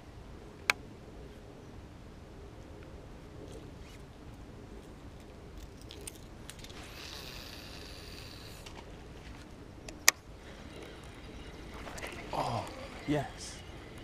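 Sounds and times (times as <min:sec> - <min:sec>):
fishing reel whirring: 0:06.6 - 0:09.0, 0:10.4 - 0:14.0.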